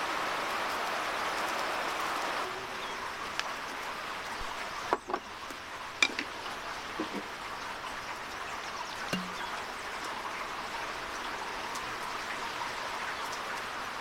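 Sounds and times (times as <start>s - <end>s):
rain on wet brick paving: 0.0s - 14.0s
wooden spoon knocking wooden bowl: 9.2s - 9.4s.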